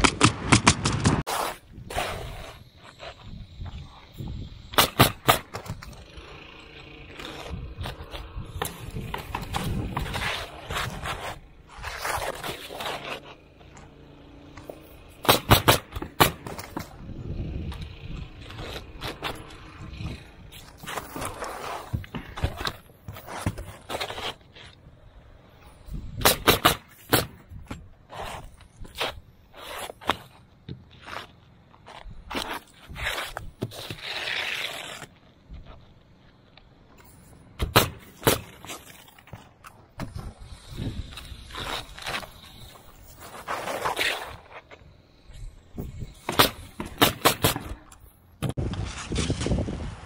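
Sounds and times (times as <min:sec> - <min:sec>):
pneumatic nailer firing: 0:04.6 - 0:06.0, 0:15.2 - 0:16.7, 0:26.1 - 0:27.5, 0:37.6 - 0:38.8, 0:45.9 - 0:48.1
shingles scraping and rustling: 0:04.8 - 0:17.0, 0:18.4 - 0:24.8, 0:26.2 - 0:36.4, 0:37.0 - 0:50.0.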